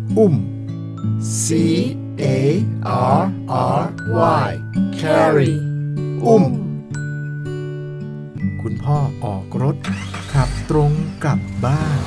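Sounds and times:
gentle guitar backing: 0:00.0 - 0:12.0
person spelling out letters: 0:01.4 - 0:05.6.

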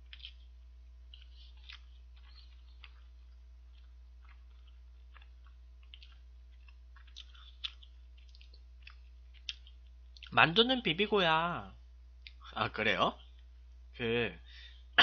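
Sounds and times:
person chewing wet clicks: 0:00.0 - 0:10.4, 0:12.2 - 0:12.4
steady low hum: 0:00.0 - 0:15.0.

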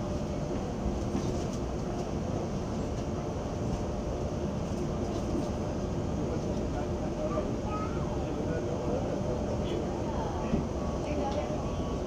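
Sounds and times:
airliner ventilation rumble: 0:00.0 - 0:12.0.

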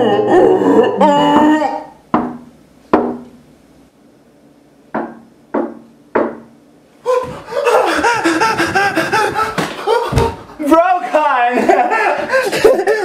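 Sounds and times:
knocking on a glass door: 0:02.1 - 0:03.2, 0:04.9 - 0:06.5.

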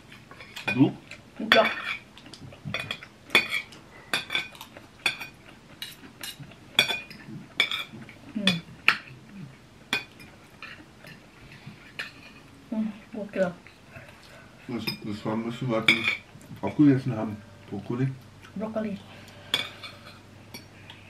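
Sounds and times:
cutlery clinking on ceramic plates: 0:02.7 - 0:09.1, 0:14.8 - 0:16.9, 0:19.3 - 0:20.7.

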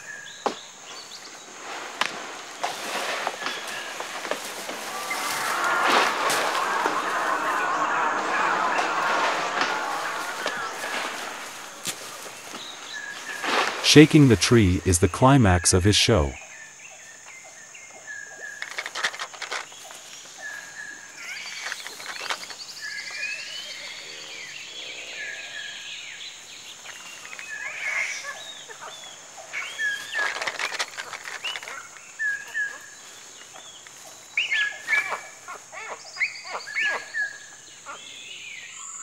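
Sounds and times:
rustling and snapping branches: 0:01.9 - 0:13.8
bird repeating paired notes: 0:14.0 - 0:16.4.

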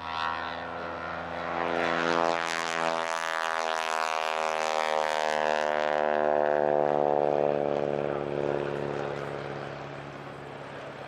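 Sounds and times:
propeller aircraft engine drone: 0:00.0 - 0:11.0.

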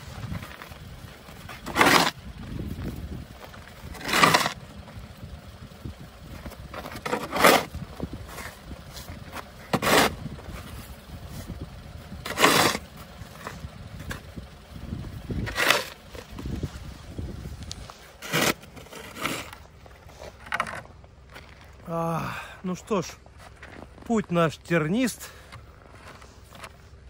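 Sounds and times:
snow shovel scraping snow: 0:00.0 - 0:02.7, 0:03.7 - 0:04.6, 0:06.8 - 0:11.5, 0:12.2 - 0:14.2, 0:15.4 - 0:20.5.

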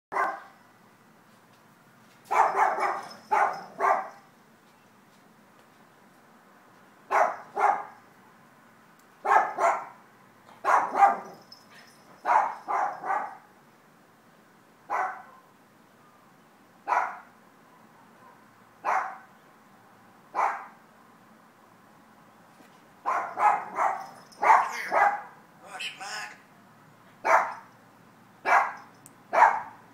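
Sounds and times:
dog barking: 0:00.1 - 0:00.6, 0:02.3 - 0:04.2, 0:07.1 - 0:08.0, 0:09.2 - 0:10.0, 0:10.6 - 0:11.4, 0:12.2 - 0:13.5, 0:14.9 - 0:15.5, 0:16.9 - 0:17.3, 0:18.2 - 0:19.3, 0:20.4 - 0:20.8, 0:23.0 - 0:25.4, 0:27.2 - 0:27.6, 0:28.4 - 0:29.8.

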